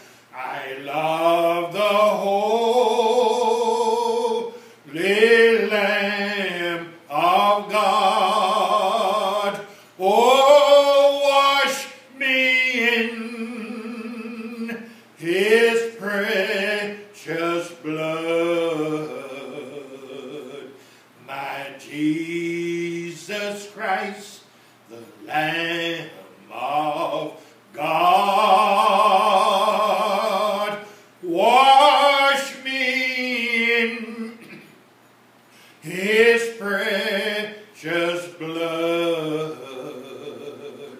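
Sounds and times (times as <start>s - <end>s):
man breathing: 0.0s - 0.3s, 4.5s - 4.9s, 9.6s - 10.0s, 14.8s - 15.2s, 20.7s - 21.2s, 24.4s - 24.9s, 30.8s - 31.2s, 35.4s - 35.8s
man singing solo: 0.0s - 34.6s, 35.8s - 40.9s.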